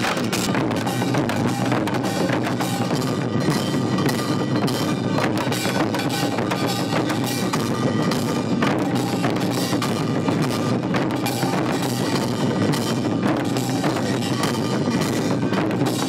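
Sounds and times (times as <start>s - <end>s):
barrel drums beaten fast: 0.0s - 16.0s.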